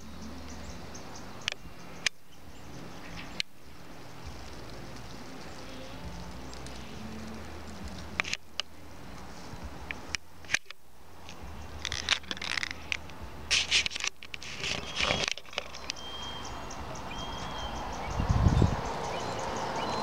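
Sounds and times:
low steady hum: 0:00.0 - 0:15.2
crackling rustles and clicks: 0:00.0 - 0:17.1.

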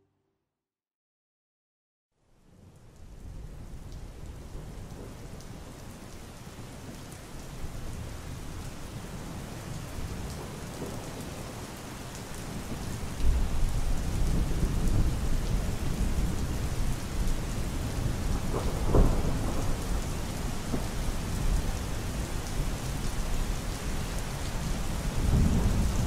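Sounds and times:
steady rain: 0:02.2 - 0:26.0
thunder rumbling: 0:17.2 - 0:22.4, 0:24.8 - 0:26.0.

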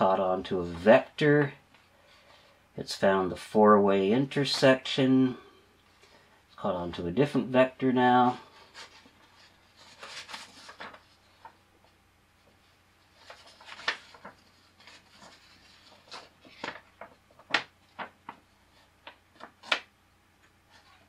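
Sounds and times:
paper crackling and rustling: 0:08.2 - 0:21.0.

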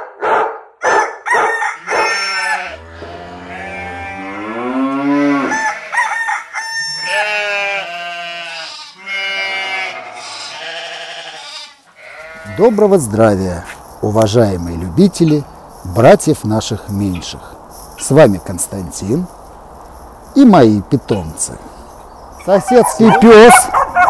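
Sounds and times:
dogs barking: 0:00.0 - 0:02.2, 0:22.4 - 0:24.0
dogs howling: 0:00.8 - 0:06.1, 0:22.6 - 0:24.0.

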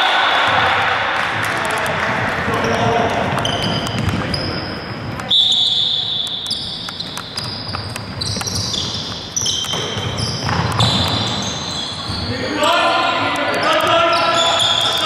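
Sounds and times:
ball bouncing: 0:00.5 - 0:12.3
shoes squeaking on floor: 0:02.4 - 0:15.0.

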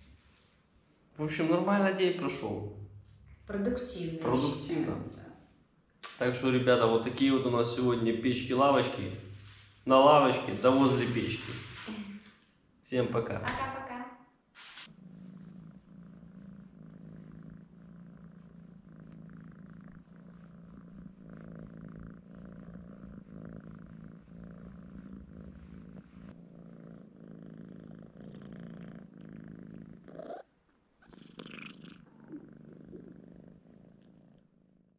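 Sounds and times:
cat purring: 0:14.9 - 0:34.9.

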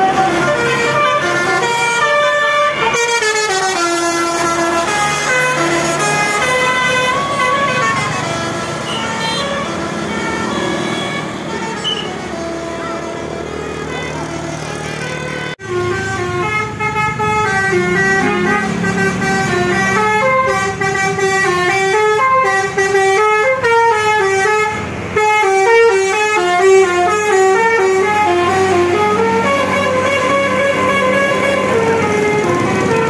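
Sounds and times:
musical bus air horn: 0:00.0 - 0:33.0
road traffic: 0:00.0 - 0:33.0.

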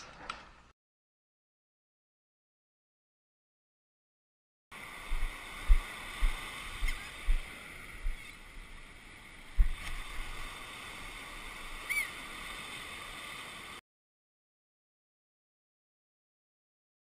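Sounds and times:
wind noise on microphone: 0:04.8 - 0:08.8, 0:09.4 - 0:10.6
surf: 0:04.8 - 0:13.8
low thumps on microphone: 0:09.6 - 0:09.9.

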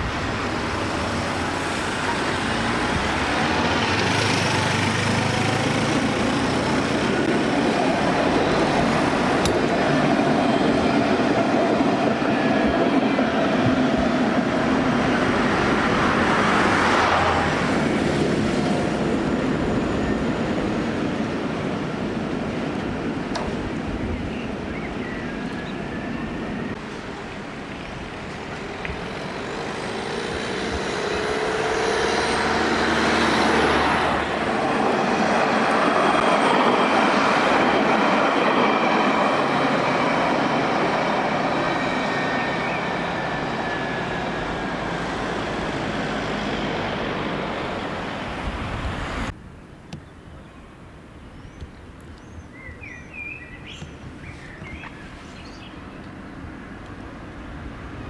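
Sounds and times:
tram wheels rumbling on rails: 0:00.0 - 0:49.4
bird chirps: 0:51.3 - 0:56.0.

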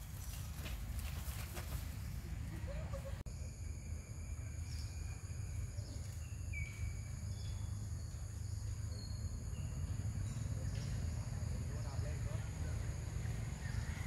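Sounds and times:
high insect drone: 0:03.3 - 0:14.0.

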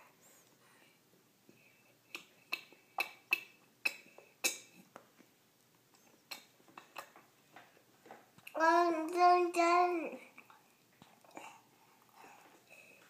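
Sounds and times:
toddler lips smacking in a bowl: 0:02.1 - 0:04.9, 0:05.9 - 0:07.3.

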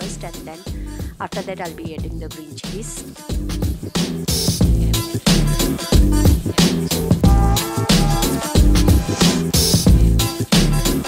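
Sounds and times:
upbeat music with beat and bass: 0:00.0 - 0:11.0.

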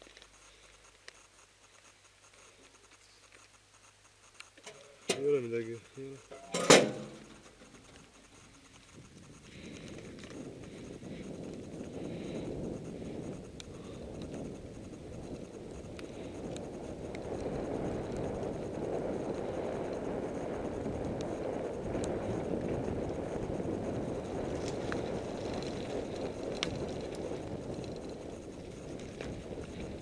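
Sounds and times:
light ticks: 0:00.0 - 0:06.4, 0:07.1 - 0:20.1, 0:23.9 - 0:30.0
road and tyre noise: 0:06.2 - 0:30.0
wind on microphone: 0:08.7 - 0:30.0.

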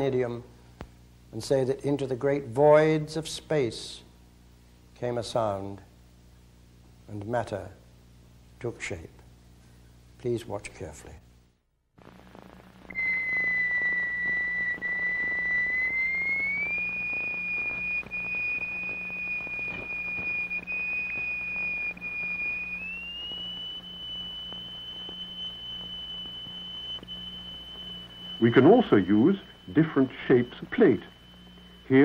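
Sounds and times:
low hum: 0:12.0 - 0:32.0
pure whistle-like tone: 0:12.9 - 0:32.0.

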